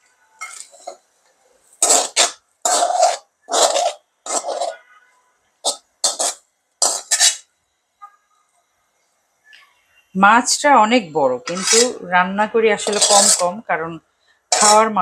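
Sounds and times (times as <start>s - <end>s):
metal spoon scraping wok: 0.2s - 1.0s, 1.6s - 5.0s, 5.6s - 7.5s, 11.3s - 12.1s, 12.7s - 13.6s, 14.5s - 15.0s.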